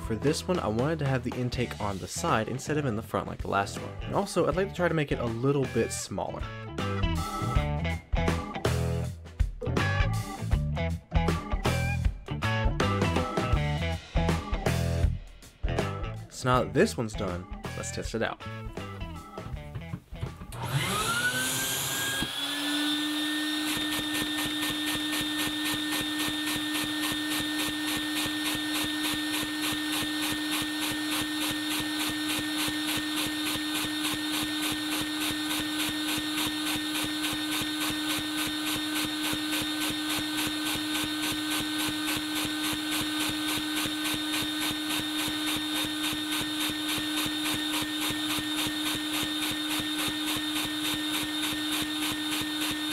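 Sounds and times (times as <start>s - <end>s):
vacuum cleaner whining: 20.4s - 52.9s.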